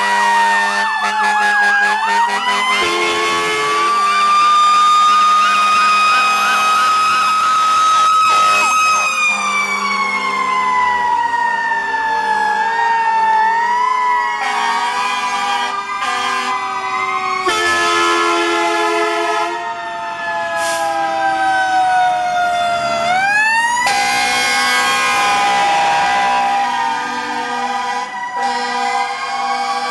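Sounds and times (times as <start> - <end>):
horn blasts: 0.0 - 3.9, 14.4 - 16.6, 17.4 - 19.6, 23.8 - 26.4, 27.0 - 29.9
electronic siren tones: 0.4 - 29.9.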